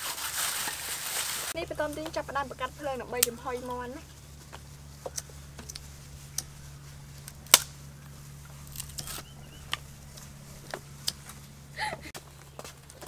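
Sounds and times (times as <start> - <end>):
faint low hum: 0.4 - 13.0
knife cutting kindling: 5.0 - 11.5.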